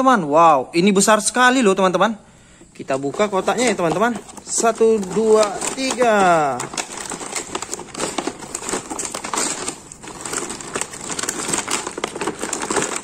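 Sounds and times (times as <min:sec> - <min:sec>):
plastic and cardboard crinkling: 0:02.6 - 0:13.0.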